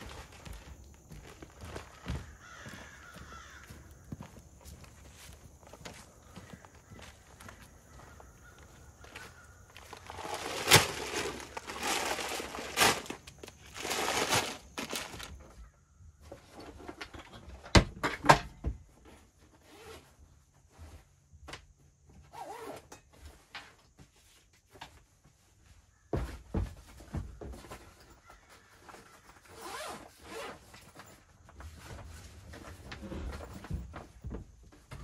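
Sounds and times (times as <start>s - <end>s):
small handling noises: 0.0s - 15.6s
rustling: 9.0s - 15.5s.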